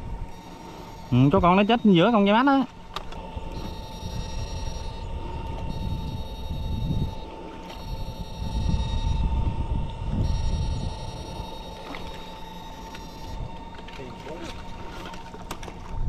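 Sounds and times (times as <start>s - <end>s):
electrofishing machine whine: 0.0s - 16.0s
wind buffeting microphone: 2.8s - 12.1s.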